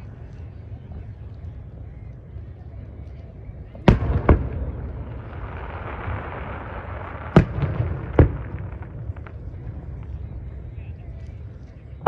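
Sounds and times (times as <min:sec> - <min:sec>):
rolling echo: 0:00.0 - 0:12.0
firework shells booming: 0:03.8 - 0:10.2.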